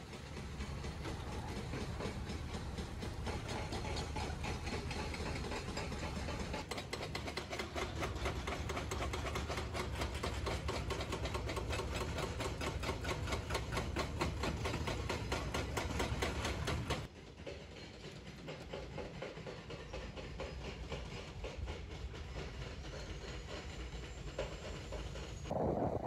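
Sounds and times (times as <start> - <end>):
diesel engines rumbling: 0.0 - 17.1.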